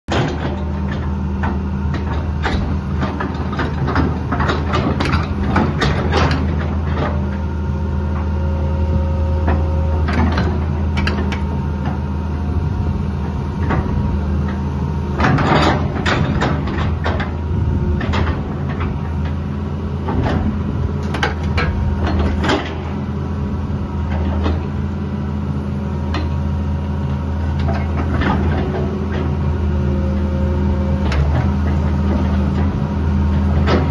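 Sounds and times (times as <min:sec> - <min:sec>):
excavator diesel engine running: 0:00.1 - 0:33.9
hydraulics moving: 0:08.2 - 0:23.1.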